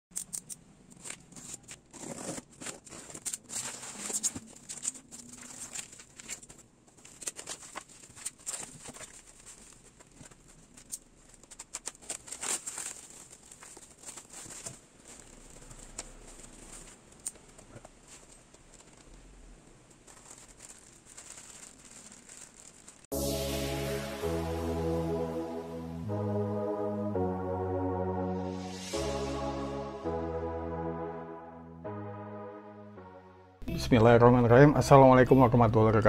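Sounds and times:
plastic film crinkling and rustling: 0:00.9 - 0:23.1.

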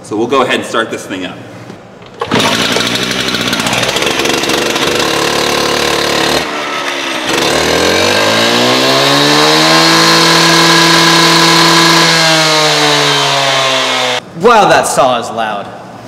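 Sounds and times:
cut-off saw engine running: 0:02.2 - 0:14.2.

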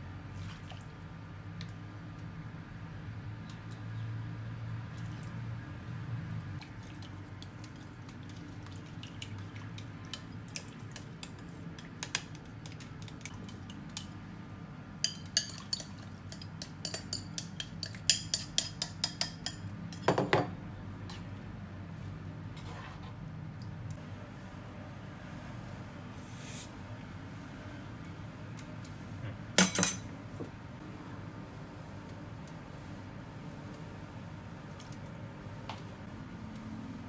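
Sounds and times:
utensils clinking on glass bowl: 0:15.0 - 0:20.5, 0:29.6 - 0:30.1.

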